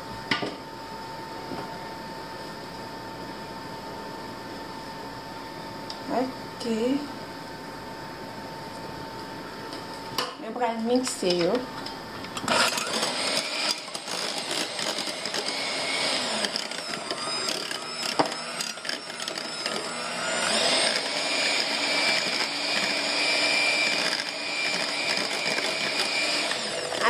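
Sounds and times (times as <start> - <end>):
electric hand mixer mashing bananas: 12.4 - 27.0.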